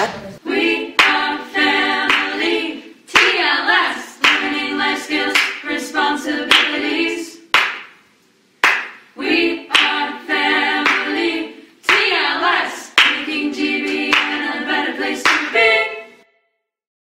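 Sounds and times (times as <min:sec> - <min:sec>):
group of voices singing: 0:00.0 - 0:07.5, 0:09.2 - 0:16.2
sharp hand claps: 0:02.1 - 0:02.3, 0:05.3 - 0:05.6, 0:07.5 - 0:08.0, 0:08.6 - 0:09.1, 0:10.8 - 0:11.1, 0:13.0 - 0:13.2, 0:13.9 - 0:14.4.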